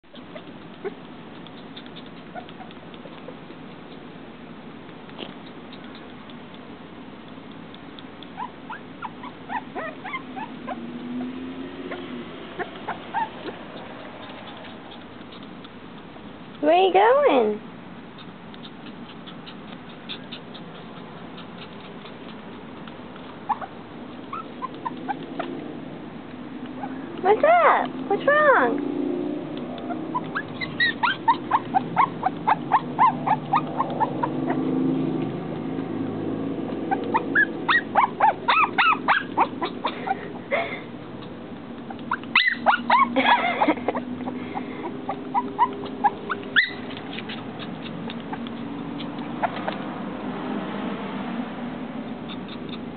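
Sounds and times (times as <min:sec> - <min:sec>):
puppy whimpering: 0:00.0 - 0:04.2, 0:05.1 - 0:06.7, 0:07.3 - 0:25.6, 0:26.4 - 0:28.8, 0:29.6 - 0:35.3, 0:36.6 - 0:49.9, 0:52.0 - 0:52.9
faint rapid ticks: 0:00.2 - 0:04.1, 0:04.8 - 0:08.4, 0:18.1 - 0:23.4.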